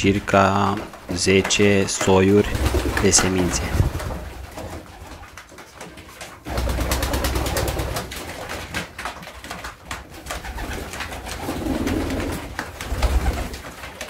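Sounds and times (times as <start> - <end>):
pigeons cooing: 10.4 - 13.6.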